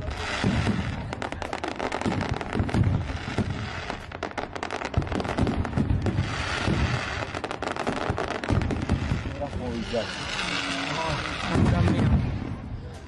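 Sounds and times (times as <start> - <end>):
rapid firework crackling: 0.0 - 12.8
fireworks bursting with deep bangs: 0.0 - 13.0.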